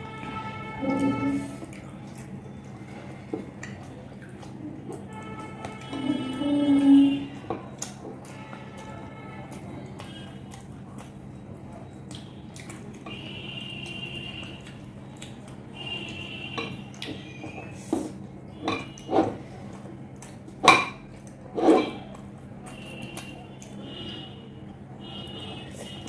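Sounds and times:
eating by hand: 0:01.0 - 0:26.0
clinks against glass plates: 0:18.6 - 0:19.2.

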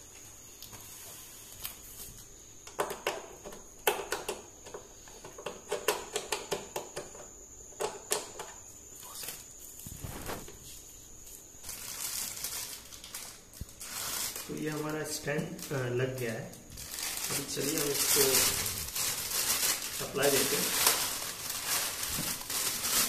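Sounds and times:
plastic rustle: 0:09.0 - 0:23.0
plastic film crackling: 0:11.6 - 0:23.0.

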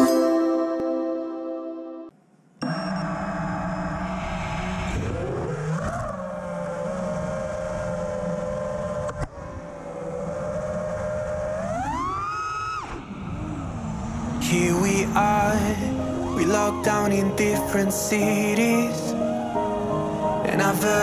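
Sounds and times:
drone motors whining: 0:02.6 - 0:16.4.

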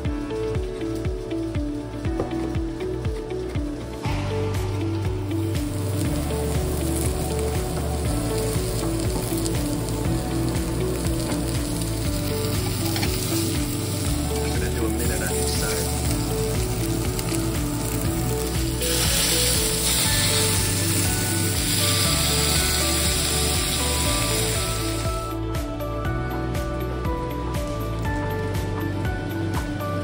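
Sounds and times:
steak sizzling in a skillet: 0:05.3 - 0:25.4.

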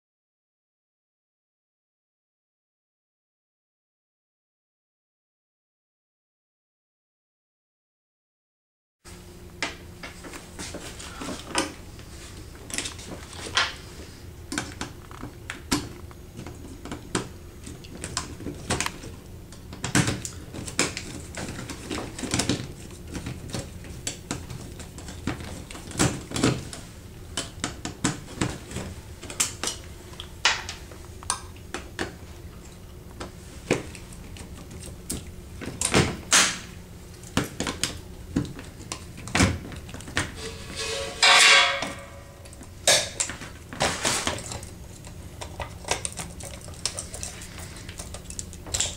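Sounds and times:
steady low hum: 0:09.1 - 0:48.9
clicks and knocks of handling: 0:37.1 - 0:48.9.

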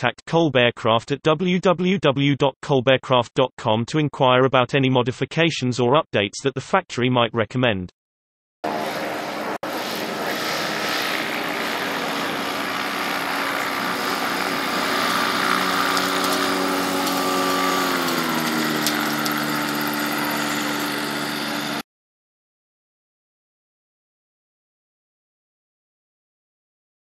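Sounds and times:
ultralight engine and propeller: 0:08.6 - 0:21.9.

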